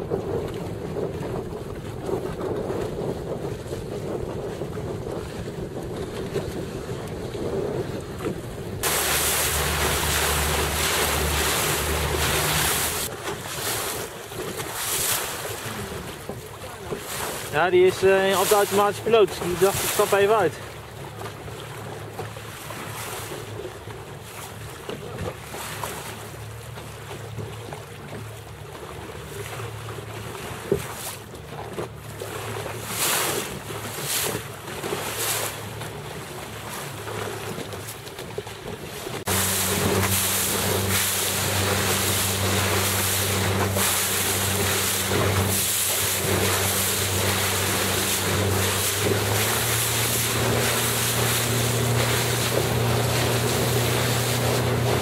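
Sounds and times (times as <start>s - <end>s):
wind on microphone: 0.0s - 20.6s, 38.6s - 55.0s
boat motor hum: 0.0s - 55.0s
water splashing around boat: 0.0s - 55.0s.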